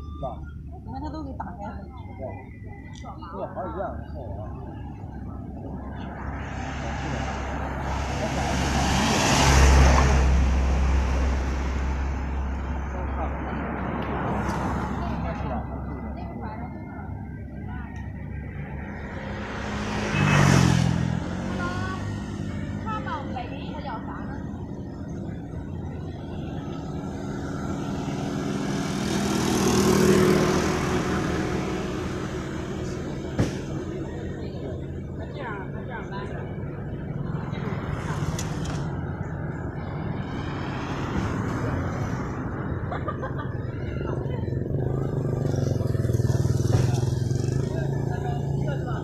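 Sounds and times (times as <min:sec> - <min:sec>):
motor vehicle passing by: 0:04.1 - 0:49.0
car driving past: 0:19.0 - 0:22.1.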